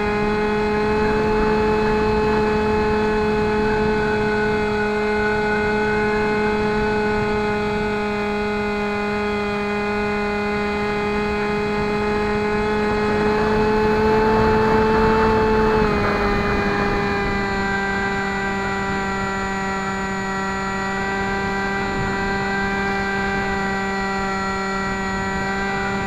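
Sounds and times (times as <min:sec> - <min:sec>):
electric motor and propeller whine: 0:00.0 - 0:26.0.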